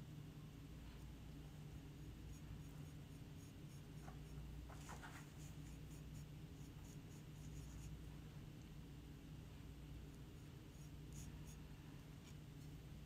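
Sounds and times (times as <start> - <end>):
low room hum: 0.0 - 13.0
paintbrush dabbing on ceramic: 1.8 - 8.0, 10.1 - 12.4.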